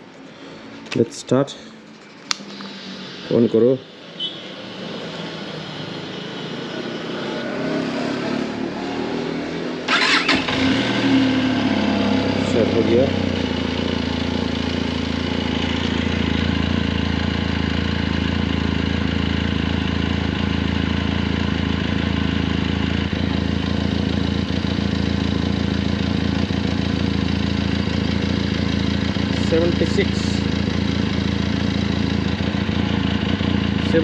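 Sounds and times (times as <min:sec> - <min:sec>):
motorcycle engine idling: 0:09.9 - 0:34.0.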